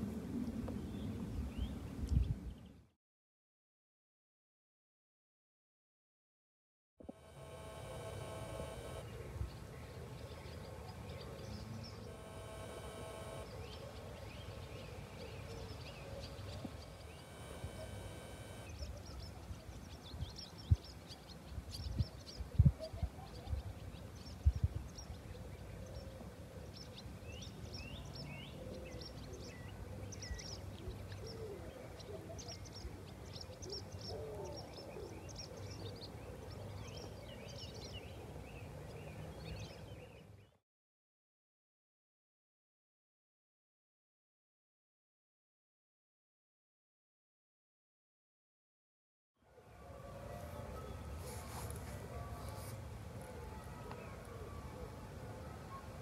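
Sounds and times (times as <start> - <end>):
small birds chirping: 7.1 - 40.6.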